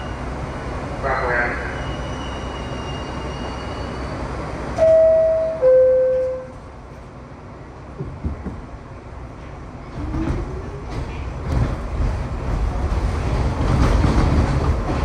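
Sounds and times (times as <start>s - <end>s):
subway train rumble: 0.0s - 15.0s
two-note door chime: 4.8s - 6.5s
soft knocks: 8.0s - 8.7s.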